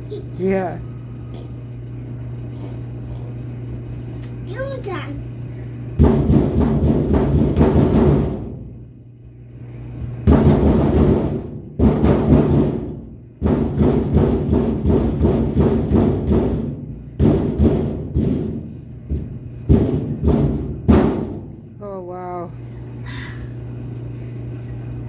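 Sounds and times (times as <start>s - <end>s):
fists drumming on sheet metal: 6.0s - 8.8s, 10.2s - 21.8s.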